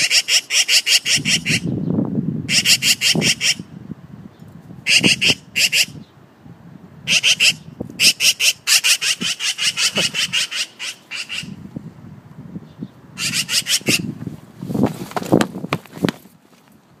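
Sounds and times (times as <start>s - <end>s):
magpie chattering: 0.0s - 1.7s, 2.5s - 3.7s, 4.9s - 6.0s, 7.1s - 11.6s, 13.2s - 14.1s.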